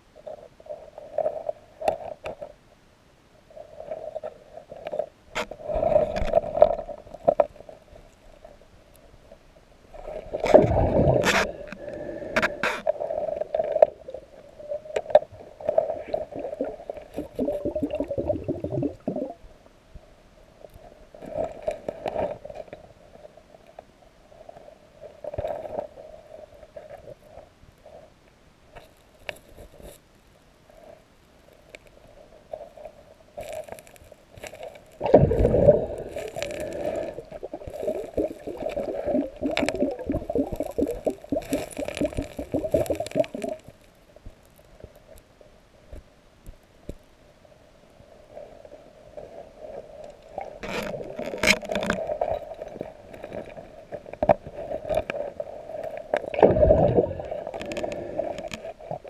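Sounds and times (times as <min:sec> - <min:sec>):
underwater scraping and knocking: 0:04.1 - 0:07.7, 0:10.1 - 0:14.0, 0:33.4 - 0:44.4, 0:50.3 - 0:55.3, 0:55.9 - 0:59.0.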